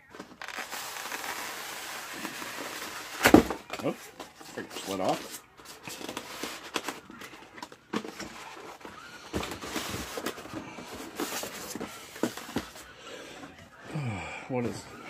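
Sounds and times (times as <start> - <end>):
foam scraping against cardboard: 0.4 - 3.6.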